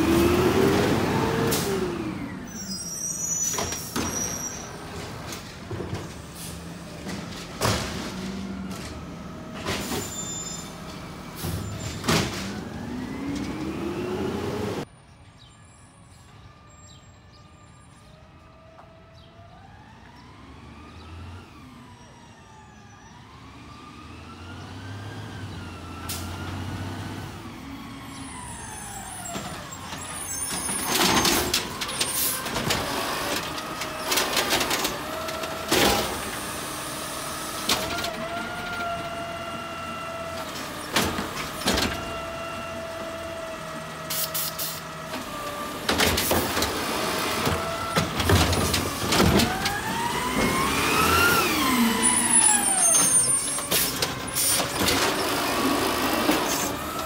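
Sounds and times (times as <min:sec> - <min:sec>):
garbage truck drivetrain whining: 0:00.0 - 0:14.9, 0:18.8 - 0:57.0
hydraulic whine: 0:44.0 - 0:57.0.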